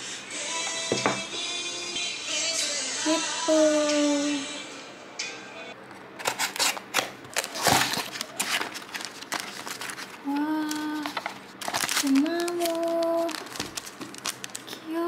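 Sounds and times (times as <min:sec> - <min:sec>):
plastic packaging crinkling: 0:06.2 - 0:15.0.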